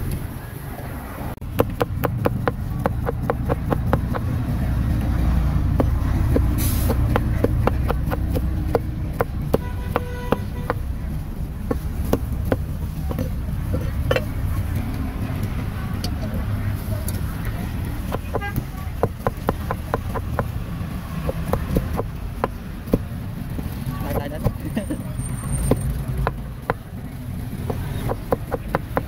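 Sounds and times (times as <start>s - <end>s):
street traffic rumble: 0.0s - 29.0s
cleaver chopping on wooden block: 1.5s - 4.3s, 5.8s - 10.8s, 11.7s - 13.4s, 18.0s - 20.5s, 21.2s - 23.1s, 27.6s - 29.0s.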